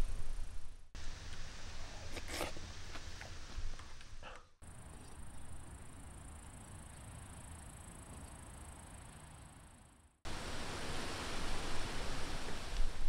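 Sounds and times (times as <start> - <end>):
outdoor hiss: 0.0 - 6.9, 10.2 - 13.0.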